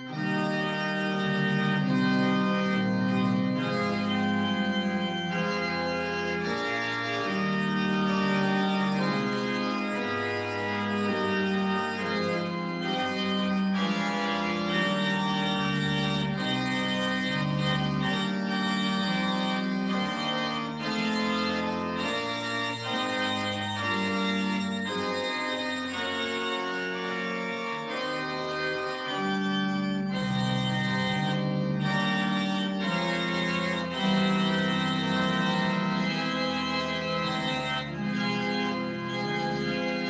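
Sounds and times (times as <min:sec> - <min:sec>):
church organ playing held chords: 0:00.0 - 0:40.0.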